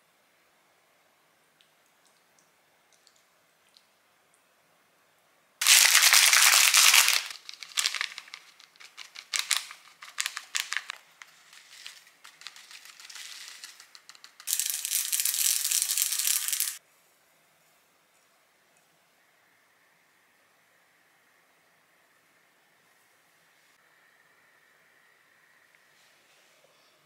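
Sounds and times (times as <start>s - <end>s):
plastic packets crinkling: 5.6s - 16.8s.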